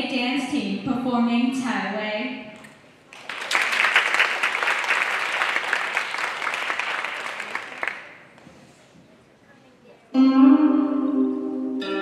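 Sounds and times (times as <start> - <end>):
audience applauding: 3.1 - 8.3.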